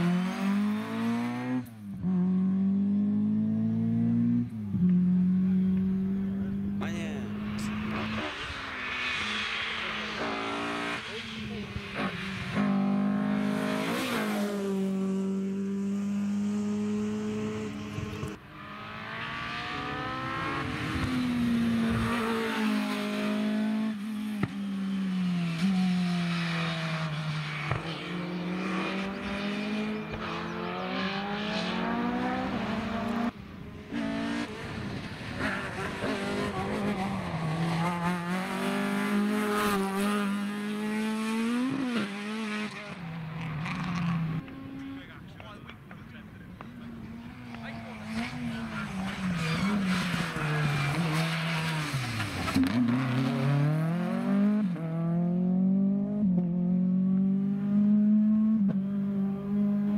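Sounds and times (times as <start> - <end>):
rally car engines revving: 0.0 - 59.9.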